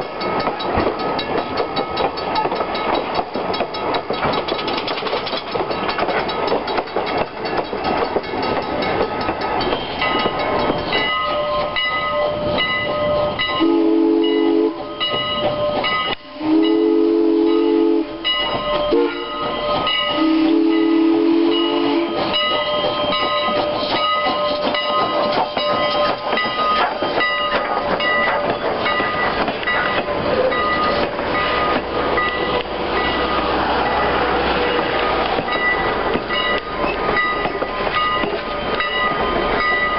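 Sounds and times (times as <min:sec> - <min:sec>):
train wheels clicking on rails: 0:00.0 - 0:39.9
steam whistle blasts: 0:13.6 - 0:14.9, 0:16.2 - 0:18.2, 0:18.9 - 0:19.4, 0:20.1 - 0:22.3.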